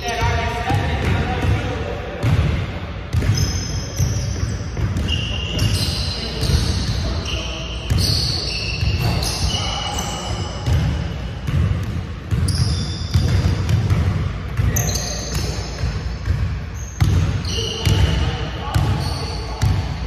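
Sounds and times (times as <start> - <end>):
sneakers squeaking: 0.0 - 20.0
basketball dribbling on wood floor: 10.6 - 14.7.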